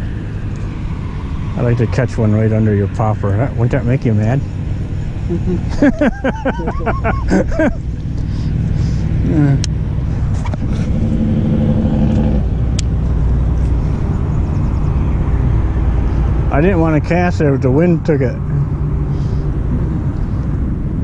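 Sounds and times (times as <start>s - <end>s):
wind buffeting microphone: 18.7s - 21.0s.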